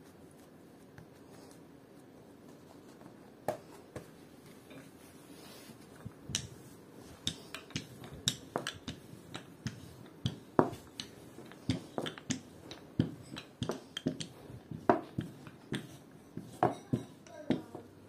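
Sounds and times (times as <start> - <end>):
utensils tapping on work surface: 7.2 - 17.9.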